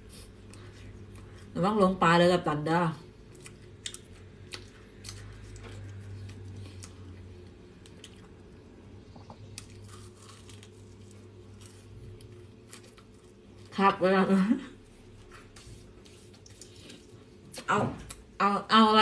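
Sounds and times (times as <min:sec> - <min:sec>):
close-up chewing: 0:03.1 - 0:13.7.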